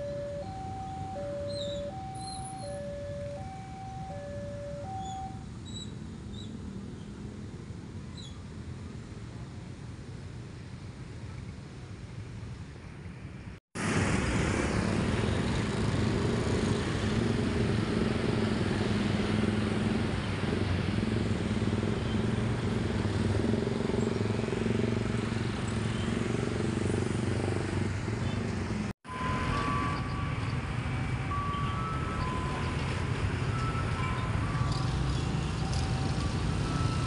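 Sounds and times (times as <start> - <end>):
motorcycle and car engines idling: 0.0 - 5.4, 14.5 - 37.0.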